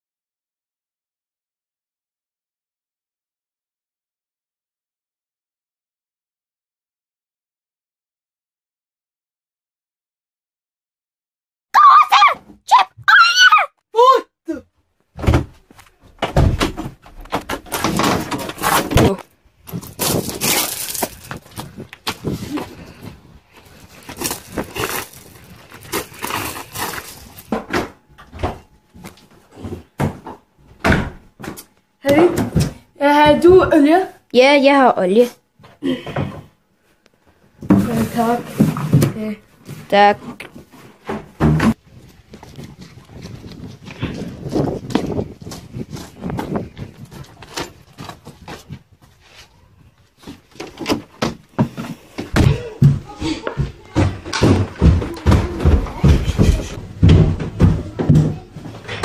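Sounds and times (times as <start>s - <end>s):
glass door knocks and bumps: 16.2s - 19.2s
running footsteps on gravel: 41.9s - 48.7s
footsteps climbing stairs: 50.2s - 59.0s.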